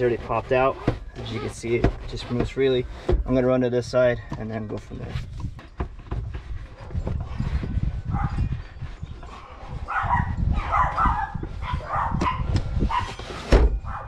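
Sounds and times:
knocks and rustling: 0:00.0 - 0:09.4, 0:10.8 - 0:14.0
dog barking: 0:08.1 - 0:08.4, 0:09.9 - 0:13.2.

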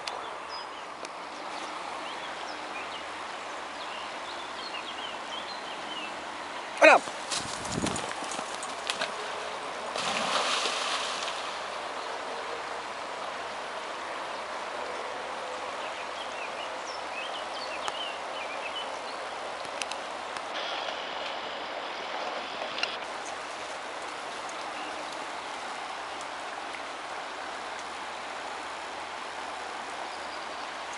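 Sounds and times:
river water flowing: 0:00.0 - 0:30.9
dog splashing into water: 0:09.9 - 0:11.7.

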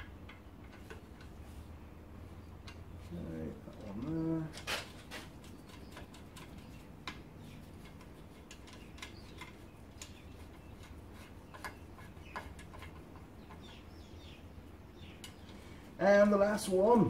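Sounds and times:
spokes tapping together: 0:03.7 - 0:13.8.

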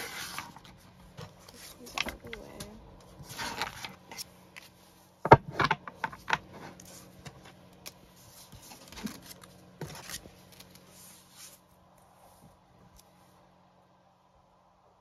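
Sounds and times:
cards tapping and rustling: 0:00.0 - 0:11.0.

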